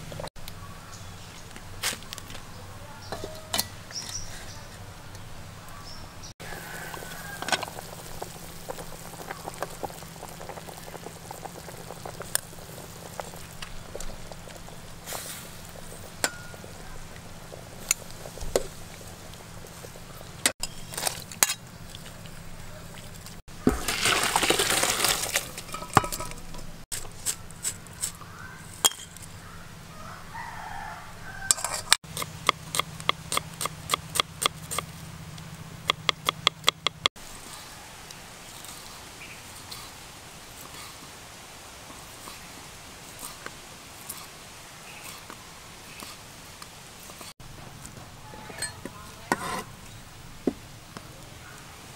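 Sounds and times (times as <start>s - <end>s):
rooster crowing: 6.4s - 7.9s, 29.4s - 31.8s
cooking knocks and clinks: 16.1s - 16.8s, 23.6s - 26.8s, 28.8s - 29.2s, 48.4s - 49.7s.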